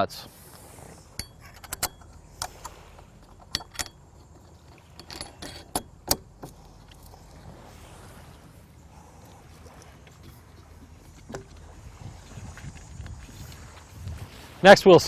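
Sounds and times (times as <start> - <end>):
metal washers and nuts clinking: 1.1 - 6.2.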